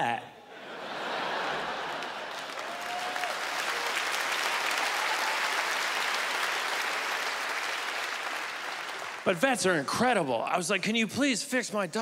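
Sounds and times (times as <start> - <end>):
audience applauding: 1.3 - 9.8.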